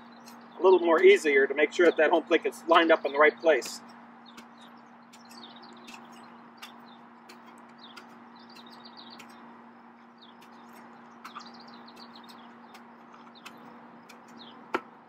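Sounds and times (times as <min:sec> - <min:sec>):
small birds chirping: 0:00.0 - 0:15.0
steady low hum: 0:00.0 - 0:15.0
spade chopping into clay: 0:03.6 - 0:09.4, 0:10.4 - 0:15.0.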